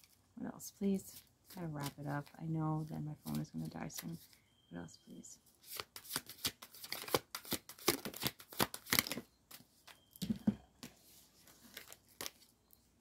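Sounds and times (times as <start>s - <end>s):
cards being shuffled: 5.6s - 10.0s.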